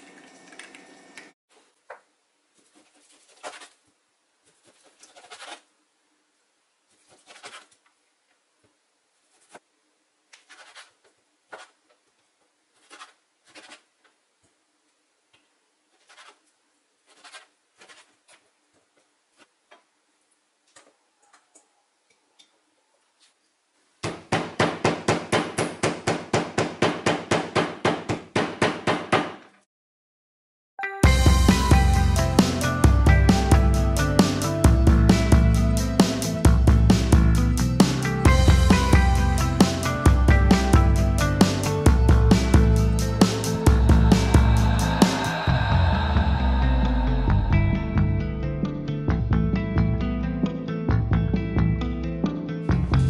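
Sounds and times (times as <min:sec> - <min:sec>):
knife cutting meat on board: 0:17.1 - 0:18.1
meat mallet pounding: 0:24.0 - 0:29.4.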